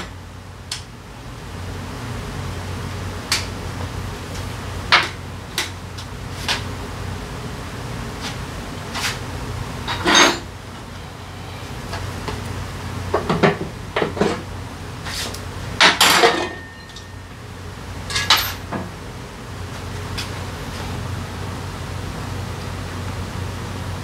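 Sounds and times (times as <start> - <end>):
metal tools clinking and clanking: 16.0 - 17.2, 18.1 - 18.7.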